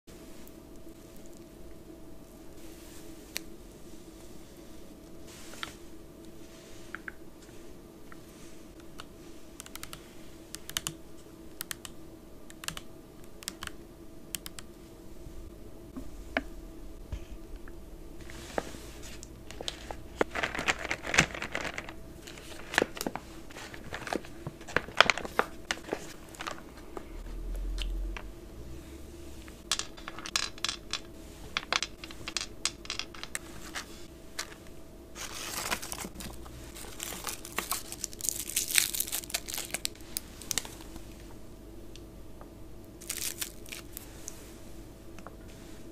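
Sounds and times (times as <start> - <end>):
plastic snack bag crinkling: 19.5 - 26.6, 35.2 - 41.0, 43.0 - 44.1
foil wrappers rustling: 19.5 - 26.7, 35.2 - 41.1, 43.0 - 44.1.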